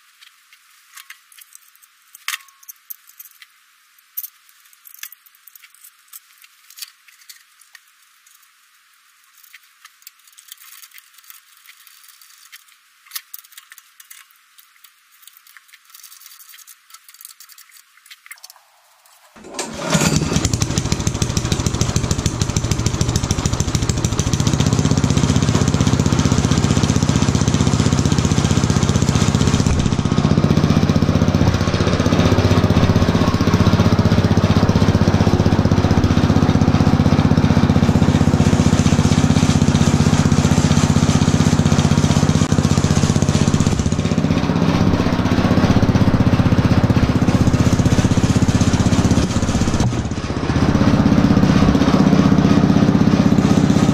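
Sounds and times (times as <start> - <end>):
small tractor engine running: 19.3 - 53.9.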